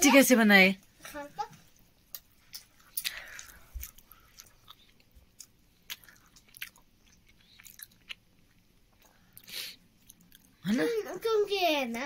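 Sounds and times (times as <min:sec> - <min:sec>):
person chewing with mouth clicks: 0:02.1 - 0:10.6.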